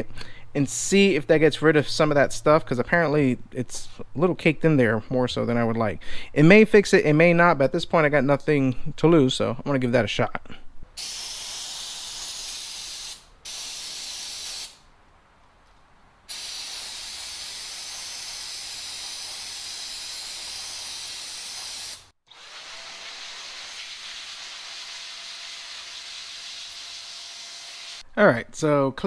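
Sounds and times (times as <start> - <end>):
aerosol can spraying: 11.0 - 14.8, 16.3 - 28.0
electric blower blowing air: 16.3 - 28.0.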